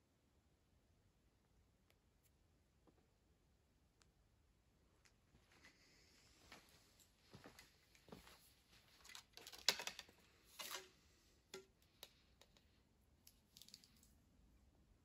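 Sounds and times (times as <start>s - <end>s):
objects handled on a table: 7.3s - 14.2s.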